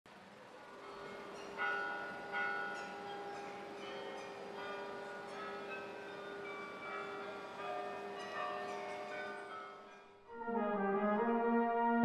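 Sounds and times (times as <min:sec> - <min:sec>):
church bells ringing: 0:00.7 - 0:10.2.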